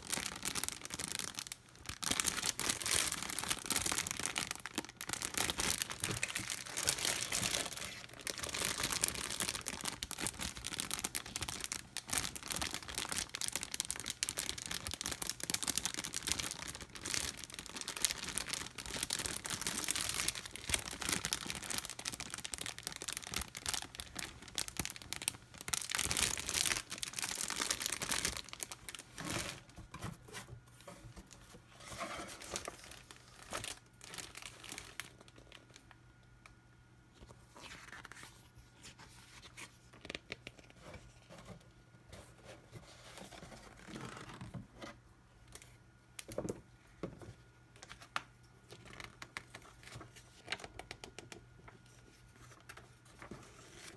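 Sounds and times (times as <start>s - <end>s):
plastic bags crinkling: 0.0s - 30.4s, 31.1s - 35.9s.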